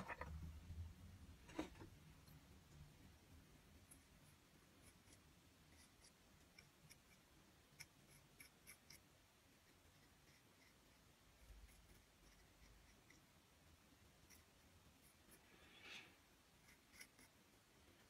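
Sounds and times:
metal tool scratching clay: 0:03.8 - 0:13.4, 0:14.1 - 0:15.7, 0:16.5 - 0:17.5.

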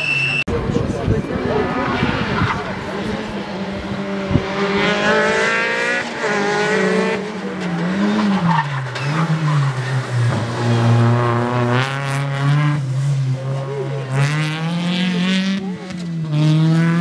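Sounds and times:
rally car engine revving: 0:00.8 - 0:17.0.

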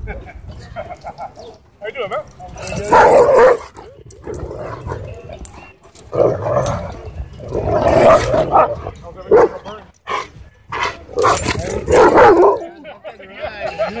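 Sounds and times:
large dogs barking: 0:02.6 - 0:12.8.

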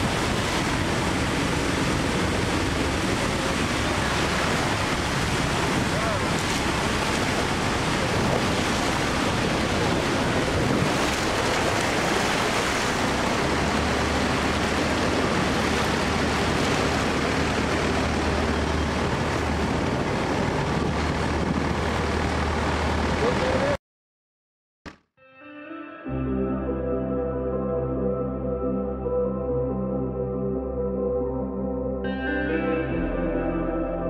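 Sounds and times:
waterfall roaring: 0:00.0 - 0:23.8.

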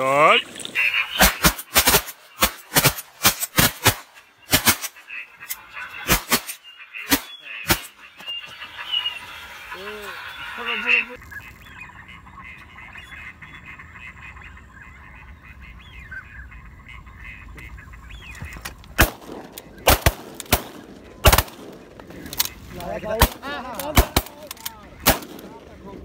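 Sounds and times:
ducks calling: 0:00.0 - 0:26.0
shotgun shots: 0:01.1 - 0:05.1, 0:06.0 - 0:08.0, 0:19.0 - 0:22.5, 0:23.2 - 0:25.8.

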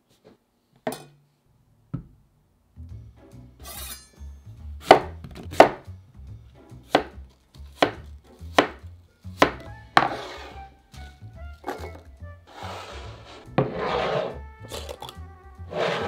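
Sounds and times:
knife scrape: 0:03.6 - 0:04.2, 0:10.0 - 0:10.6, 0:12.5 - 0:15.0, 0:15.7 - 0:16.0
knife chopping onto wooden board: 0:04.8 - 0:05.9, 0:06.9 - 0:10.4.

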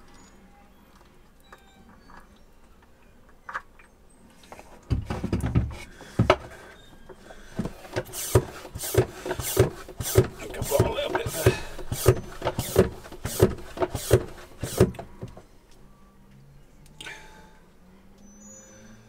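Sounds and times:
knocks and scraping: 0:04.5 - 0:15.4.

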